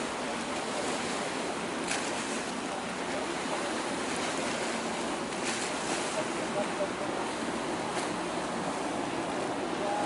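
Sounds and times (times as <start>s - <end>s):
water rushing past boat: 0.0s - 10.0s
water swish: 0.0s - 10.0s.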